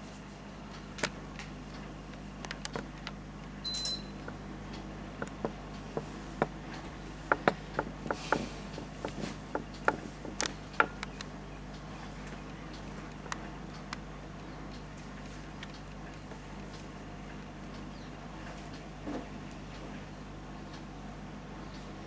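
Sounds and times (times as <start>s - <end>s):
writing clicks and taps: 5.2s - 11.2s.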